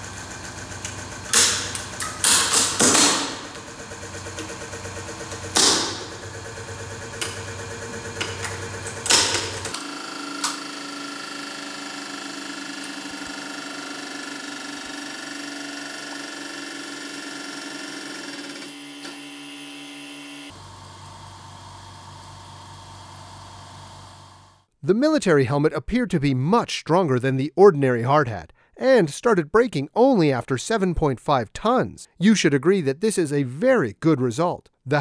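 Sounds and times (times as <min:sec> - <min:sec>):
hydraulic press humming: 0:00.0 - 0:24.7.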